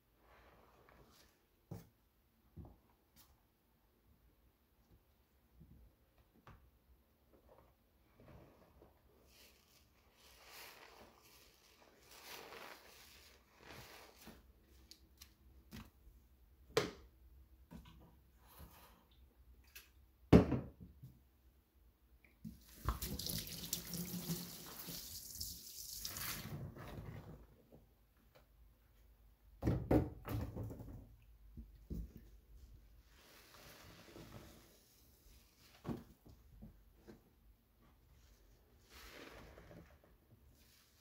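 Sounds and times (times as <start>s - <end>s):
water running: 22.5s - 26.5s.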